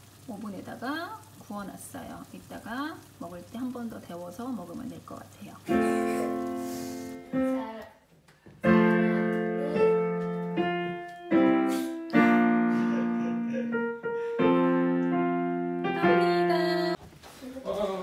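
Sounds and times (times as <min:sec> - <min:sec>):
digital piano chords: 0:05.7 - 0:07.8, 0:08.6 - 0:17.0.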